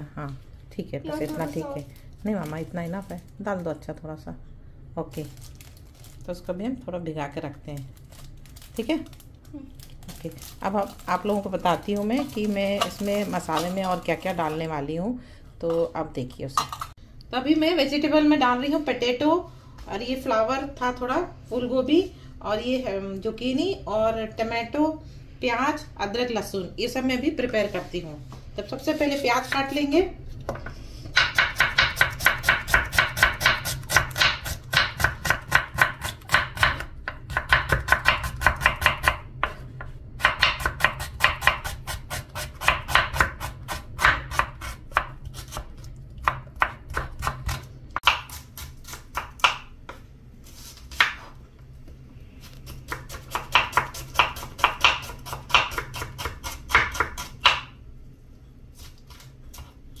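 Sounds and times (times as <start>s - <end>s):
knife chopping on wooden board: 30.6s - 50.0s, 52.9s - 57.7s.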